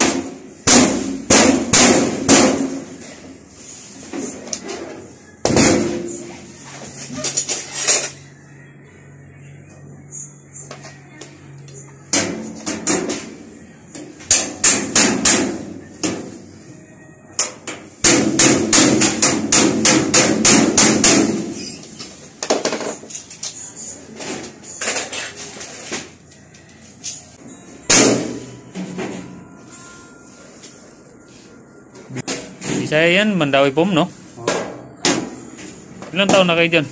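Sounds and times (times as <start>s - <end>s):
hard knocks on sheet steel panels: 0.0s - 3.0s, 5.4s - 6.2s, 12.1s - 13.3s, 14.3s - 16.4s, 17.4s - 21.6s, 27.9s - 28.4s.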